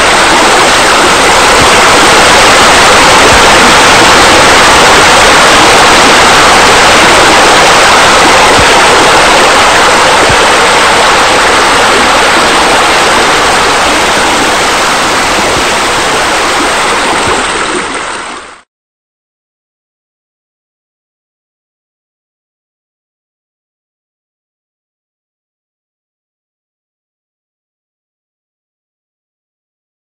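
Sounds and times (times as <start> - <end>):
rush of falling water: 0.0 - 18.7.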